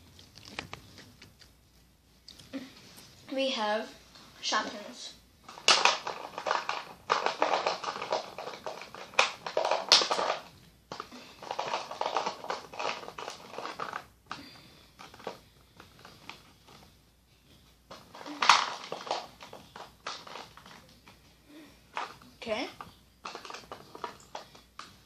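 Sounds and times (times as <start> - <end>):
plastic toys rustling and clicking: 4.6 - 16.9, 17.5 - 25.0.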